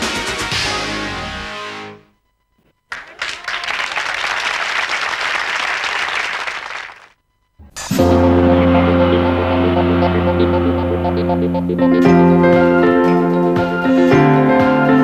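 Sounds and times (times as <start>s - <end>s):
music: 0.0s - 2.1s, 7.8s - 15.0s
audience applause: 2.9s - 7.2s
music with steady low chord: 8.0s - 15.0s.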